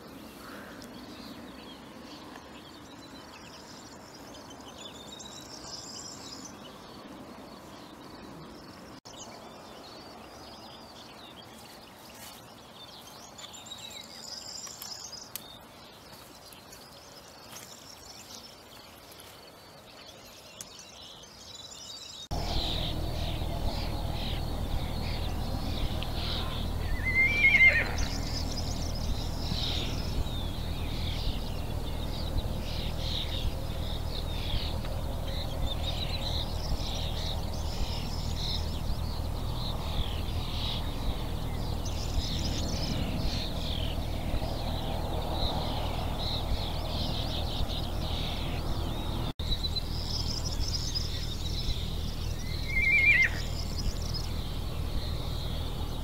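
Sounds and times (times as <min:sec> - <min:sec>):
birds singing faintly: 0:00.0 - 0:56.0
low steady background noise: 0:00.0 - 0:56.0
horse whinnying: 0:27.0 - 0:28.0.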